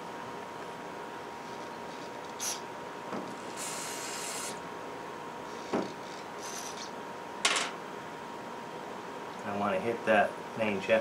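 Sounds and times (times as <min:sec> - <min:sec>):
aerosol spray hissing: 0:03.5 - 0:04.6.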